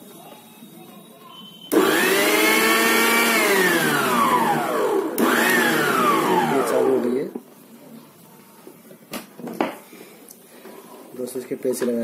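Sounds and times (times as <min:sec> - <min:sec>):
mixer grinder motor whine: 0:01.7 - 0:07.3.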